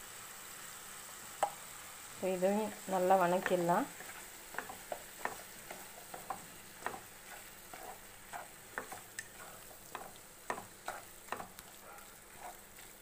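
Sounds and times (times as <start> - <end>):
faint frying hiss: 0.0 - 13.0
spatula scraping pan: 2.7 - 13.0.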